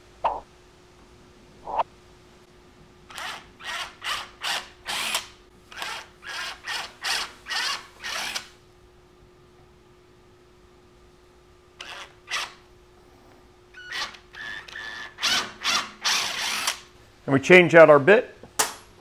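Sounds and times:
cordless drill boring into wood: 3.1 - 8.5, 11.8 - 12.6, 13.8 - 16.9.

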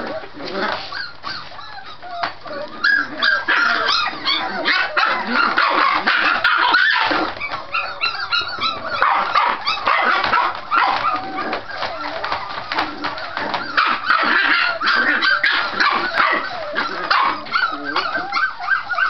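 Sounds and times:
puppies yipping and barking: 0.0 - 19.0.

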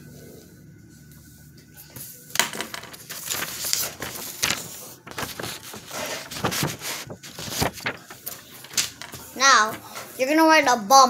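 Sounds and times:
paper rustling and crackling: 2.4 - 10.2.

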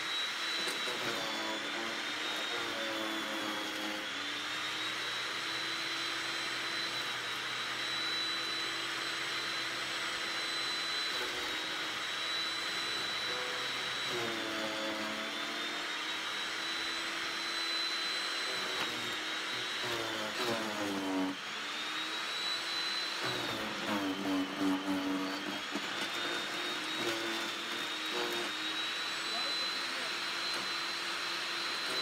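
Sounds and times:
branches grinding in shredder: 0.0 - 8.6, 16.7 - 32.0
electric chipper shredder whining: 0.0 - 32.0.

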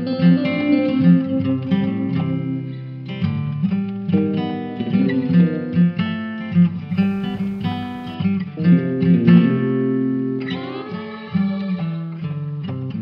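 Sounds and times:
acoustic guitar playing: 6.9 - 8.2.

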